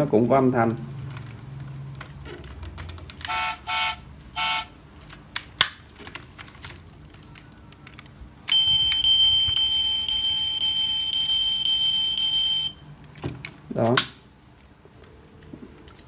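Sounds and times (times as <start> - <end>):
loud electronic buzzing tone: 3.3 - 4.7
toy short beeps: 3.3 - 4.7, 8.5 - 12.7.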